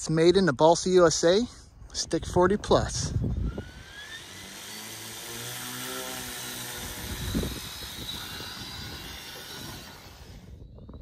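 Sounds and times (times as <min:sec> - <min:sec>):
electric motor whine: 0:03.2 - 0:11.0.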